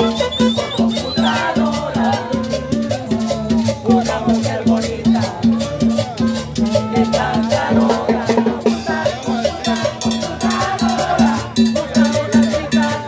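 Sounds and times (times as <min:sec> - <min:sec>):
busy percussion: 0:00.0 - 0:13.0
latin dance music: 0:00.0 - 0:13.0
pulsing bass notes: 0:00.0 - 0:13.0.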